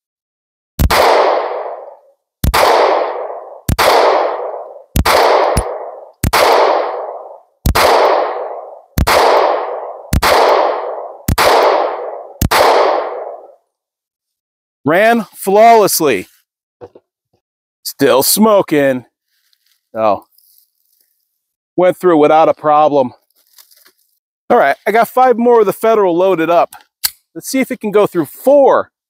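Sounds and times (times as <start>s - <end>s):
pistol shots with echo: 0.8s - 13.6s.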